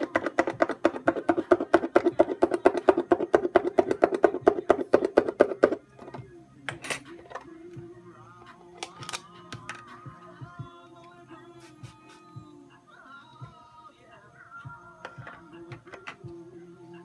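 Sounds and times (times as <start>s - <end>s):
tool tapping plastic cup: 0.0s - 7.4s
faint music with held notes: 0.0s - 17.0s.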